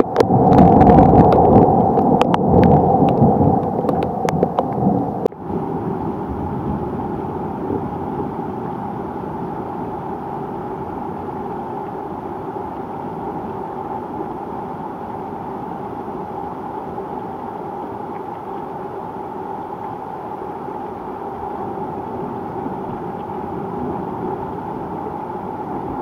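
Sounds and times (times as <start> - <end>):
thunder rumbling: 0.0 - 11.8, 21.6 - 26.0
steady rain: 0.0 - 26.0.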